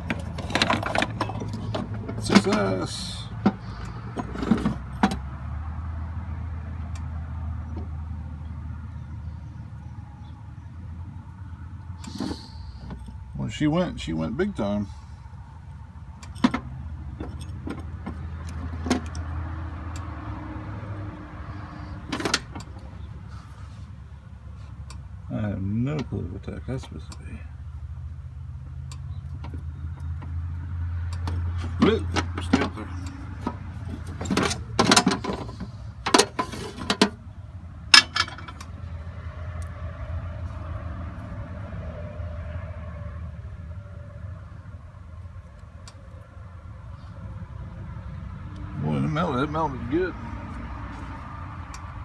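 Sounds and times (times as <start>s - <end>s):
metal clatter: 0.0s - 3.6s, 31.6s - 37.2s, 37.9s - 38.7s.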